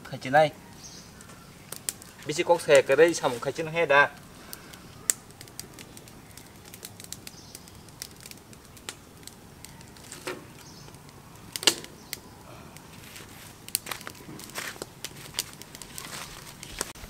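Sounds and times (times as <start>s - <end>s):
wood fire crackling: 0.0s - 17.0s
sharp fire cracks: 0.7s - 17.0s.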